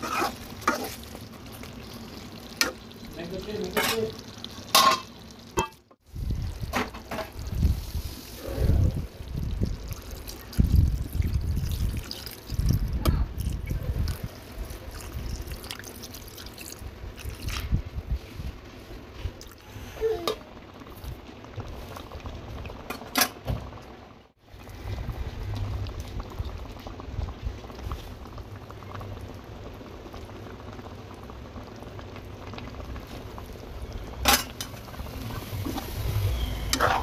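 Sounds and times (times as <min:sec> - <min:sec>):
curry simmering: 0:00.0 - 0:37.0
liquid pouring into a pan: 0:09.2 - 0:17.8.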